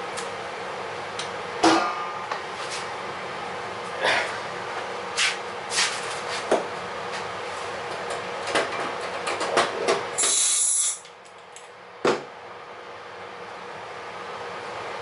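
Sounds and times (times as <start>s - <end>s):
air compressor running: 9.4s - 11.1s
air hiss: 10.2s - 11.0s.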